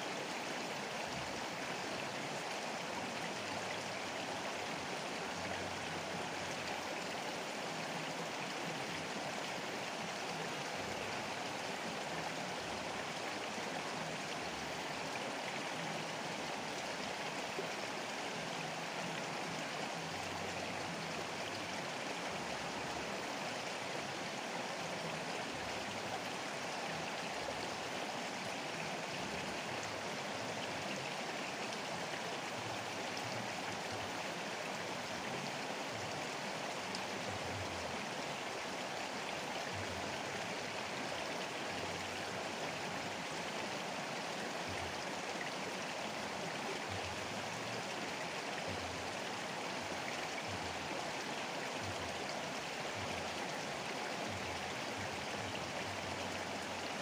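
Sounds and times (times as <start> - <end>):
river rushing: 0.0 - 57.0.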